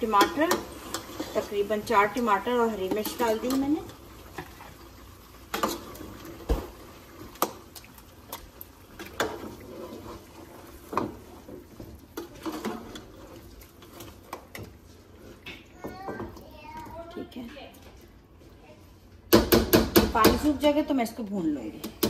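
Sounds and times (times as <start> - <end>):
food sizzling and bubbling in pan: 0.0 - 20.3
spatula knocking against pan: 19.3 - 20.5.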